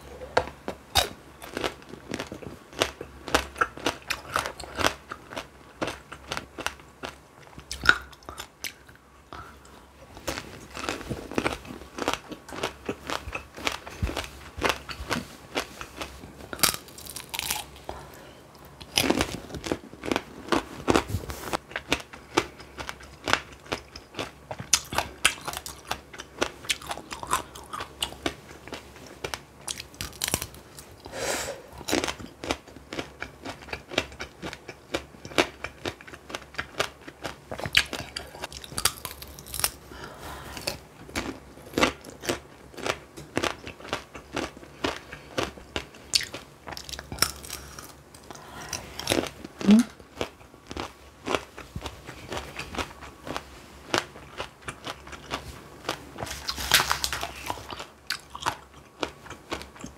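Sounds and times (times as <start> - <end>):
chewing: 0.2 - 31.1, 31.8 - 39.8, 40.6 - 59.9
candy shell crunching: 10.2 - 18.0, 36.3 - 39.8.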